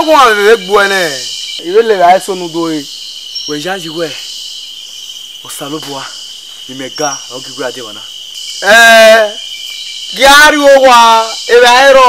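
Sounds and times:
crickets chirping: 0.0 - 12.0
man exclaiming loudly: 10.2 - 12.0.

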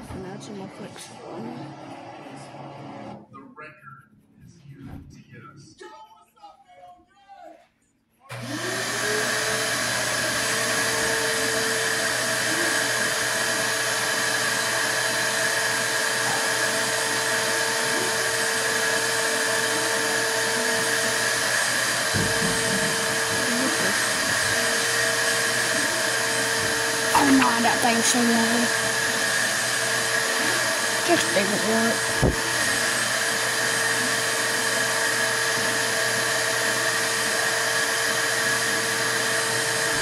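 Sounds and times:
small electric motor whining: 8.3 - 40.0.

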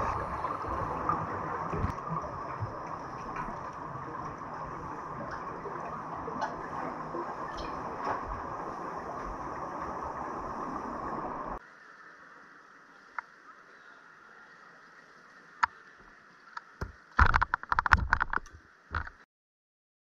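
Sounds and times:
exhaled bubbles rising: 0.0 - 11.6
muffled underwater rushing: 0.0 - 19.1
knocks and clattering: 16.8 - 19.2.

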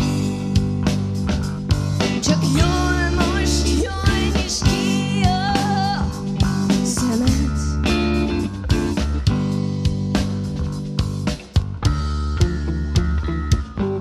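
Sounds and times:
bass guitar: 0.0 - 14.0
drums: 0.0 - 14.0
electric guitar: 0.0 - 14.0
woman singing: 2.2 - 7.9.

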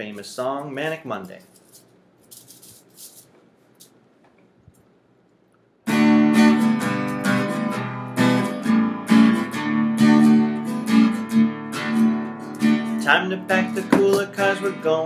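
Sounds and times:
acoustic guitar strumming chords: 5.9 - 15.0.

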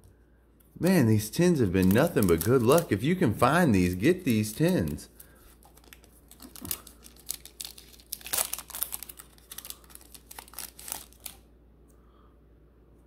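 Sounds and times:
foil pack crinkling and tearing: 1.3 - 11.5.

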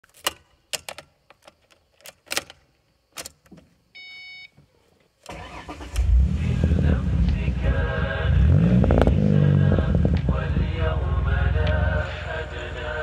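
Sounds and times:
car engine starting: 5.3 - 13.0.

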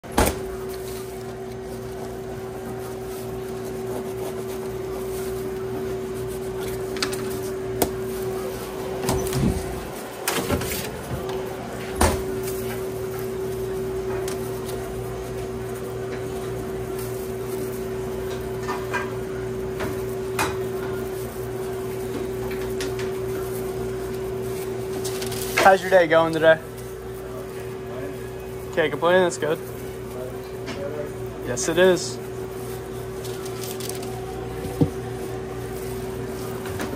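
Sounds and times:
shop equipment hum: 0.0 - 36.9.

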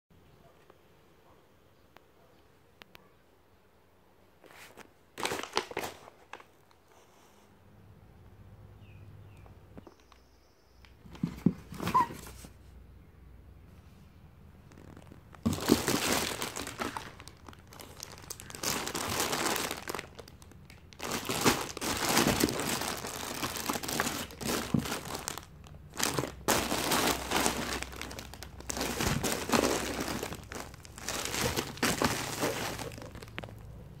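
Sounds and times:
plastic bags crinkling: 4.7 - 6.6, 14.7 - 33.8.

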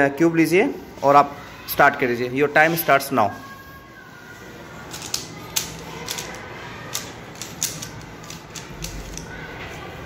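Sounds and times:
puzzle cube clicking: 4.9 - 9.3.

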